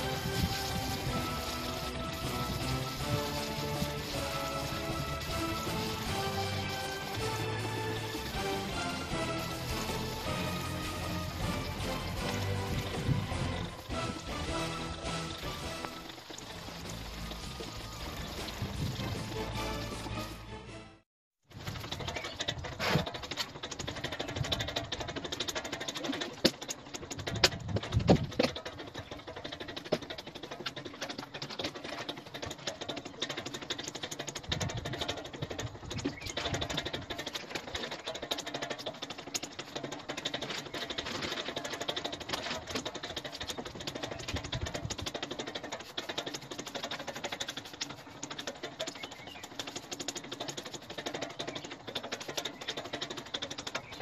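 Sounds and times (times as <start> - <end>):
rain pattering: 0.0 - 20.2.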